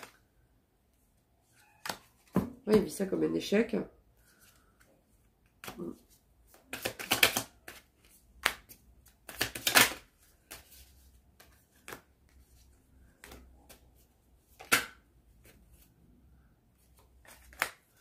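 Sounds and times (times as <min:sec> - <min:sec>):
cards being shuffled: 0:01.5 - 0:02.8, 0:04.3 - 0:16.0, 0:16.8 - 0:18.0.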